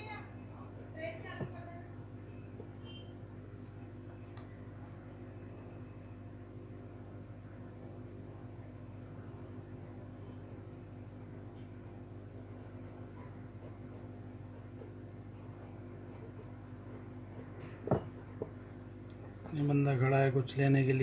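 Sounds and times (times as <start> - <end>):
steady low hum: 0.0 - 21.0
pencil scratching on paper: 0.6 - 3.0, 7.8 - 18.5.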